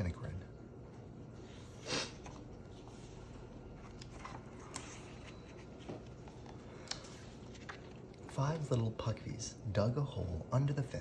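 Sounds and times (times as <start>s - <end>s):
paper pages rustling: 1.5s - 9.0s.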